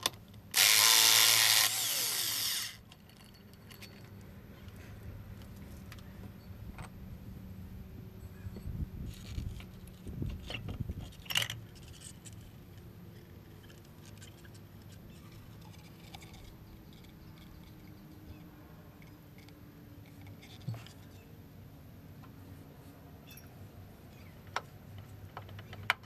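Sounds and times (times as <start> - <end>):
metal parts clunking: 0.0 - 5.0, 9.1 - 12.6
metallic clink: 2.6 - 4.9
light clicks and scraping: 8.6 - 21.4.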